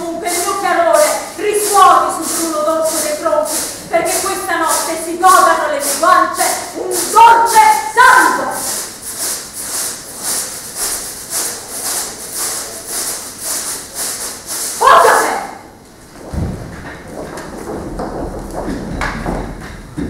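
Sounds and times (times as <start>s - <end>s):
rhythmic hissing rattle: 0.0s - 15.3s.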